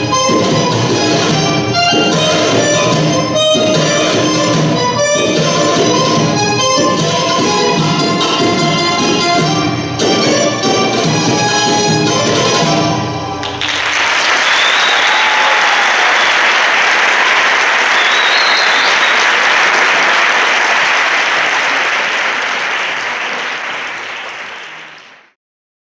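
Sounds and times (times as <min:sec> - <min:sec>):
audience applauding: 0:13.4 - 0:25.4.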